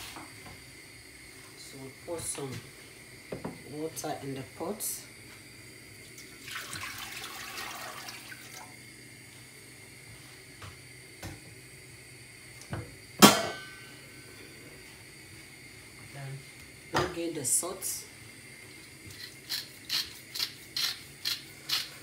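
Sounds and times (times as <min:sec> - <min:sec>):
water poured into pot: 0:06.0 - 0:08.8.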